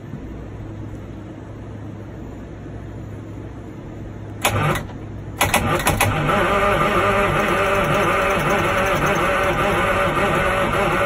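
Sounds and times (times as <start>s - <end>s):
steady low hum: 0.0s - 11.0s
diesel engine starter cranking: 4.4s - 11.0s.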